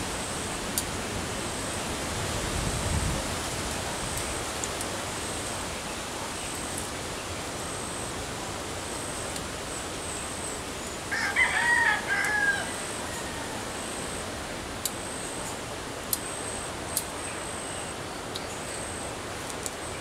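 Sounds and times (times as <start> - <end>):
steady outdoor hiss: 0.0 - 20.0
rooster crowing: 11.1 - 13.8.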